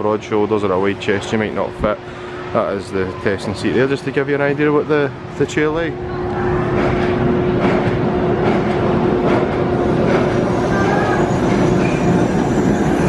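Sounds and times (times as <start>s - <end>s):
steady hum: 0.0s - 13.0s
roller coaster rumbling on track: 2.6s - 13.0s.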